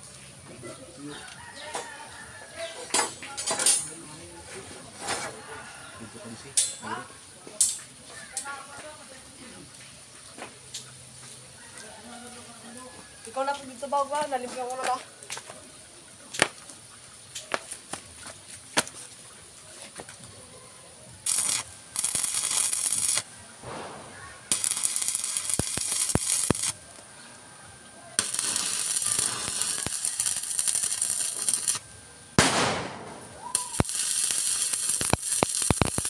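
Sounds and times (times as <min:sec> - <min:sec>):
arc welding bursts: 0:21.2 - 0:26.8, 0:28.2 - 0:36.0.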